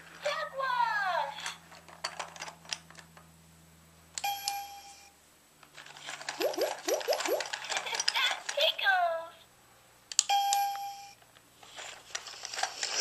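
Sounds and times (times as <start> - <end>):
rising electronic swoops: 6.4 - 7.5.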